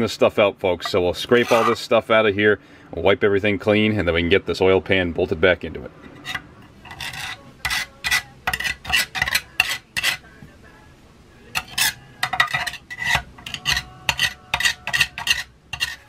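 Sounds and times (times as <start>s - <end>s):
scraper scraping metal pan: 1.2s - 1.8s, 6.0s - 10.3s, 11.5s - 16.0s.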